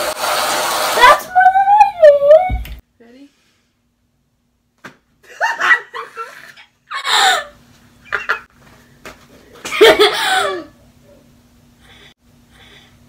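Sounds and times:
girls squealing and laughing: 5.3 - 7.6.

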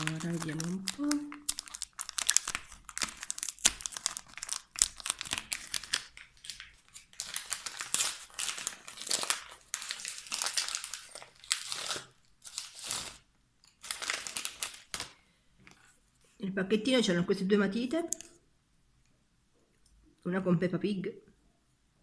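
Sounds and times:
gift wrapping torn and crumpled: 0.0 - 15.2.

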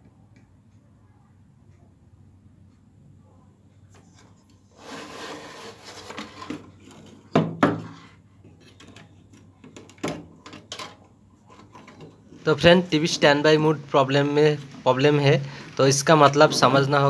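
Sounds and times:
rubbing and scraping: 4.0 - 7.2.

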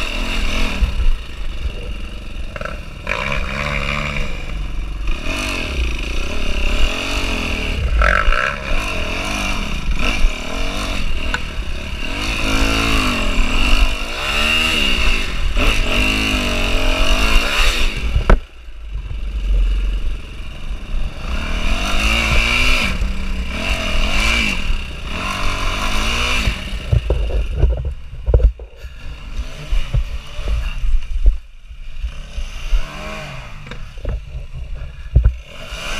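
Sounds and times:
dirt bike engine revving: 0.0 - 35.9
clatter of bike and rocks: 26.4 - 32.8, 33.6 - 35.6.

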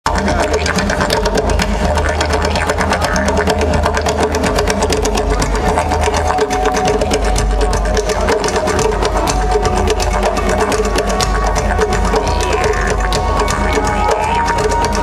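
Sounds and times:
fast drumming: 0.0 - 15.0.

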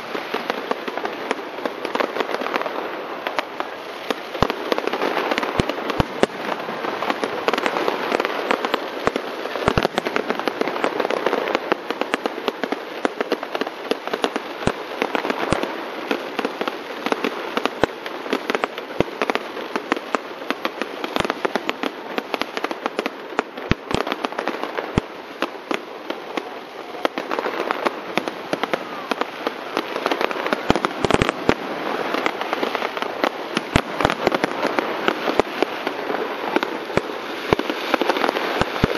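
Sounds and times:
fireworks crackling: 0.0 - 38.9
fireworks pops and bangs: 0.0 - 38.9
heavy fireworks bangs: 0.0 - 38.9.

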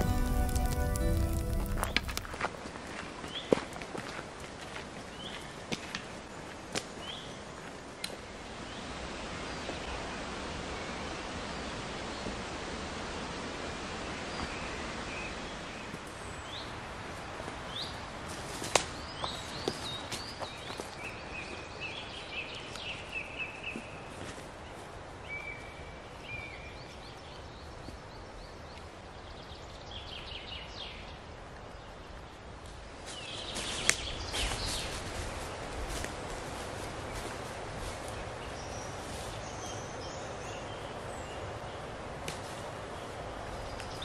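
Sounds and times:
background hiss: 0.0 - 2.8
footsteps in dry leaves: 0.0 - 5.9, 33.0 - 39.8
bird calls and song: 6.3 - 10.0, 18.9 - 35.7, 38.0 - 41.9, 43.0 - 44.0.

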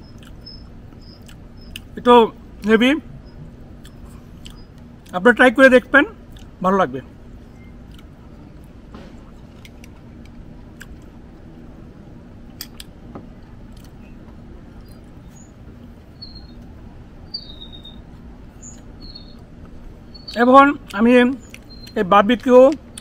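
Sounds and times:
high bird chirps: 0.0 - 2.0, 14.8 - 20.6, 21.2 - 22.0
steady low hum: 0.0 - 23.0.

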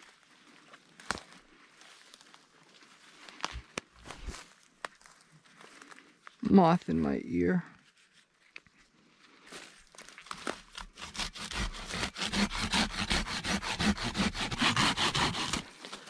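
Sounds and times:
hand saw cutting wood: 10.8 - 15.8.

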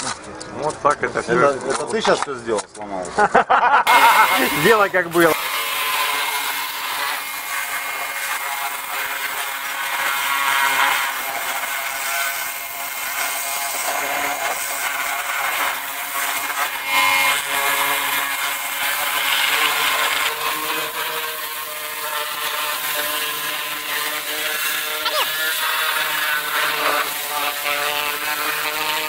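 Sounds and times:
water jet hissing: 3.9 - 16.4
pressure washer pump whine: 3.9 - 29.0.

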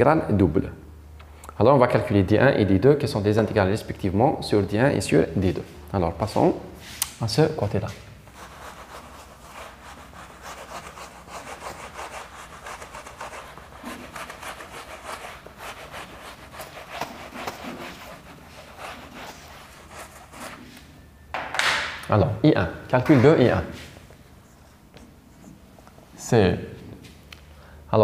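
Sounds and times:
eraser rubbing on whiteboard: 8.3 - 20.9.

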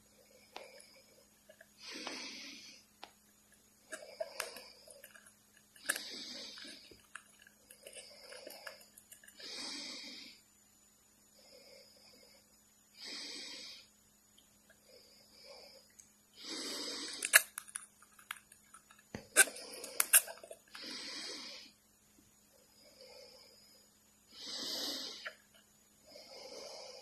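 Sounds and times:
bird hissing into plastic cup: 5.8 - 7.0.

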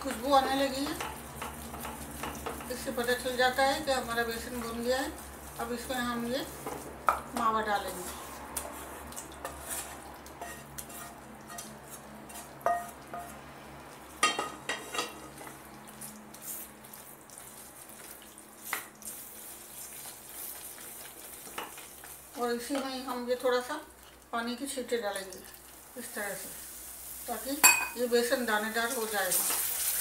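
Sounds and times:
light sizzle of hot fat: 0.0 - 30.0
spatula scraping thick mixture: 7.8 - 12.6
spatula knocking against pot: 12.7 - 13.4.

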